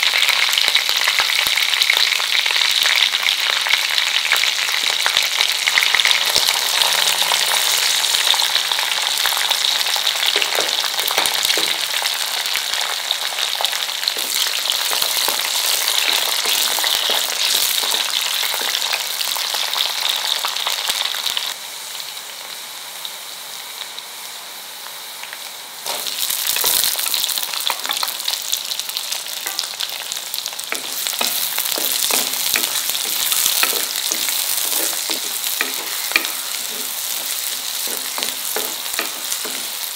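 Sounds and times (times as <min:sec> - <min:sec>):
hot oil sizzling and crackling: 0:00.0 - 0:39.9
wooden spatula stirring: 0:14.2 - 0:18.9, 0:30.7 - 0:39.9.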